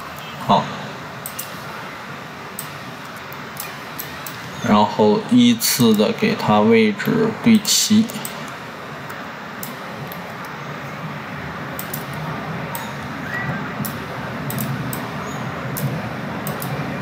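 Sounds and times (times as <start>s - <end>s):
microphone hiss: 0.0s - 17.0s
computer mouse clicking: 1.2s - 1.6s, 11.8s - 12.9s, 13.8s - 15.1s, 15.8s - 16.8s.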